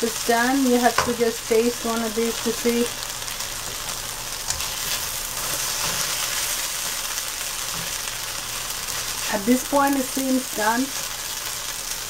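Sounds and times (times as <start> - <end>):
curry sizzling in a frying pan: 0.0 - 12.0
spatula stirring and scraping: 3.4 - 9.4.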